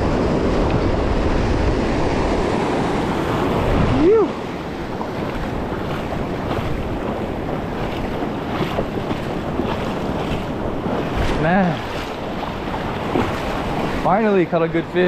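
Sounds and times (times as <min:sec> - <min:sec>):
surf washing over rocks: 0:00.0 - 0:15.0
wind buffeting microphone: 0:00.0 - 0:15.0
person exclaiming: 0:03.9 - 0:04.4.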